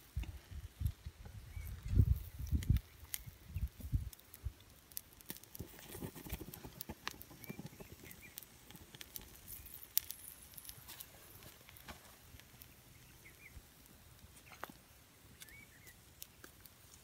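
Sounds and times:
embers crackling: 0.0s - 17.0s
rustling: 5.0s - 13.1s.

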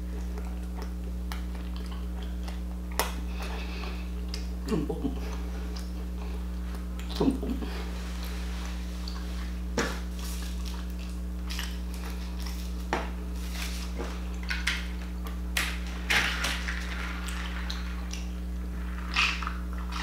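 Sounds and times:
steady low hum: 0.0s - 20.0s
chewing clicks and smacks: 0.1s - 3.5s, 4.2s - 4.6s, 6.7s - 7.3s, 10.6s - 12.6s.

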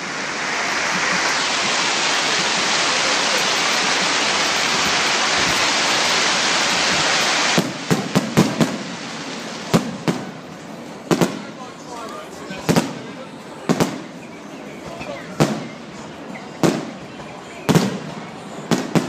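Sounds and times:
fireworks crackling hiss: 0.0s - 19.0s
fireworks bangs and pops: 0.6s - 11.6s, 12.6s - 14.3s, 15.4s - 15.8s, 16.6s - 17.1s, 17.7s - 19.0s.

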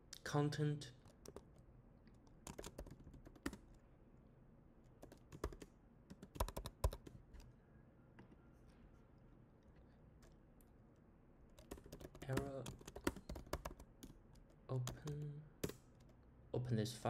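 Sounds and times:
computer keyboard typing: 1.0s - 1.6s, 2.2s - 3.8s, 5.0s - 7.5s, 11.5s - 16.2s.

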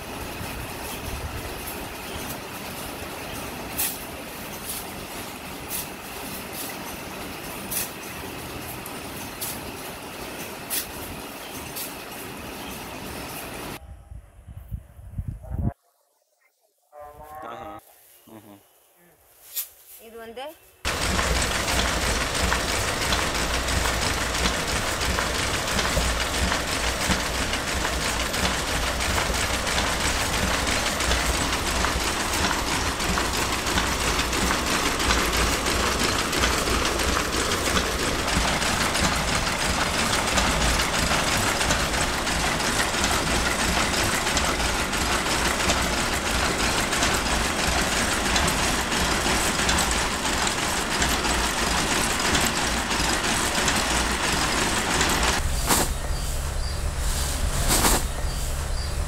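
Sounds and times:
power looms clattering: 0.0s - 13.8s, 20.9s - 59.0s.

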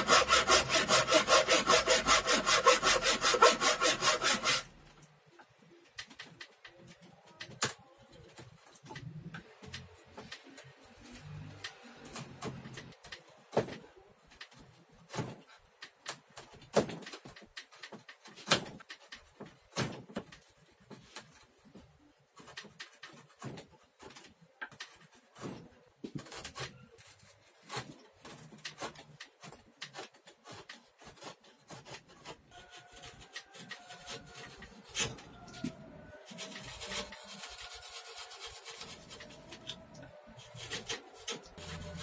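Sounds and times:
chisel scraping wood: 0.0s - 4.8s, 22.4s - 42.0s.

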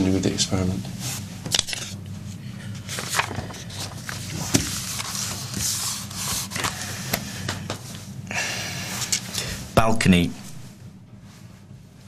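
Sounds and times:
steady low hum: 0.0s - 12.0s
paper rustling and shuffling: 1.1s - 7.0s.

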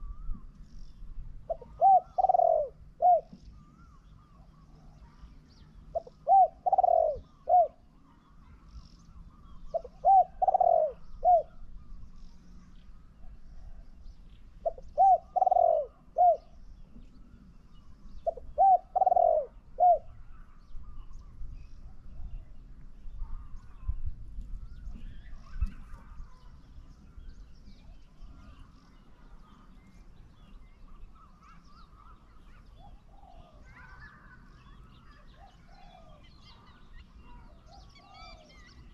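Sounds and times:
small birds chirping faintly: 0.0s - 38.9s
dove cooing: 1.4s - 3.4s, 5.9s - 7.9s, 9.7s - 11.7s, 14.6s - 16.6s, 18.2s - 20.3s, 31.2s - 34.4s, 35.1s - 38.9s.

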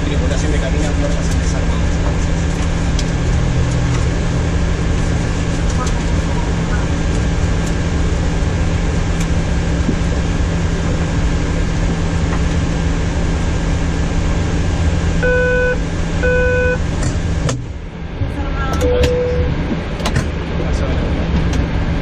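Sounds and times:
aircraft cockpit systems hum: 0.0s - 22.0s
short electronic beeps: 15.2s - 16.8s, 18.7s - 19.6s.

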